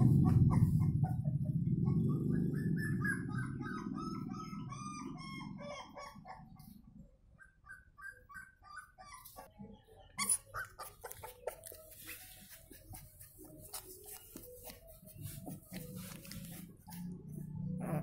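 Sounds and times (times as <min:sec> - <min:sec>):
puppy whimpering: 0:00.0 - 0:14.5, 0:15.2 - 0:18.0
rustling against microphone: 0:11.1 - 0:17.2.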